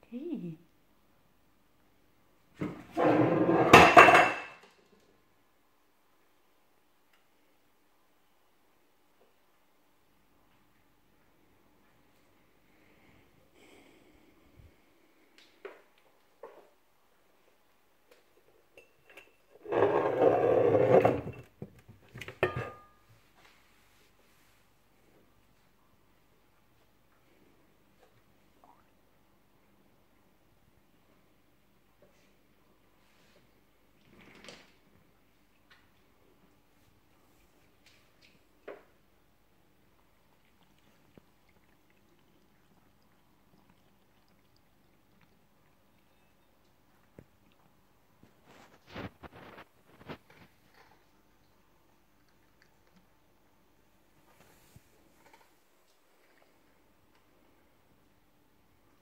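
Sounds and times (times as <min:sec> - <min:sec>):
cat lapping water from a glass: 0:39.9 - 0:48.2, 0:51.4 - 0:53.3.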